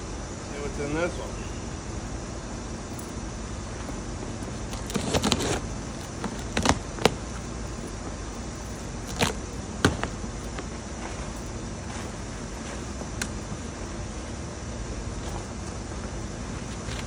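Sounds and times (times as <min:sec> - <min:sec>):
steady background hum: 0:00.0 - 0:17.0
cardboard rustling and scraping: 0:04.6 - 0:07.3.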